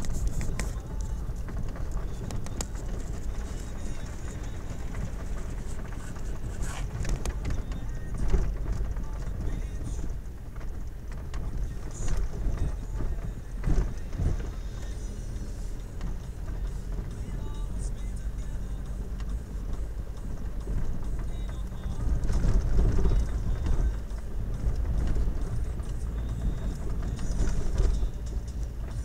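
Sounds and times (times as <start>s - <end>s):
engine and road rumble: 0.0s - 29.0s.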